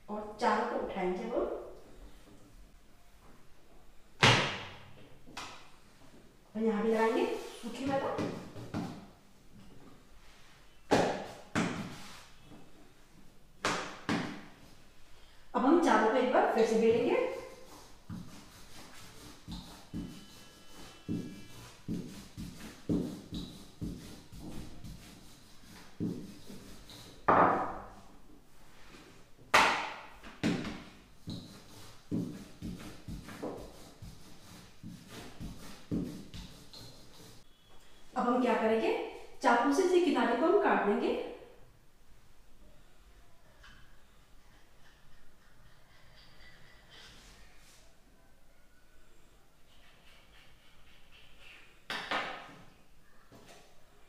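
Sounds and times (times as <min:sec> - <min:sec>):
wooden rolling pin on dough: 0:07.0 - 0:09.0, 0:16.8 - 0:28.0, 0:30.2 - 0:37.4.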